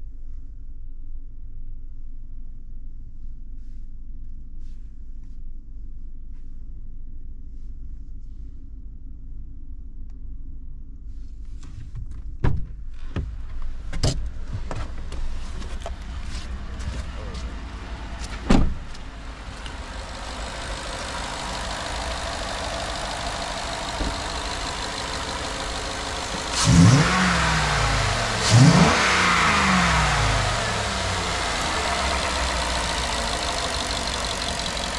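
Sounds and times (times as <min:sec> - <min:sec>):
truck engine idling and revving: 0:14.3 - 0:34.9
sharp thump: 0:18.3 - 0:18.8.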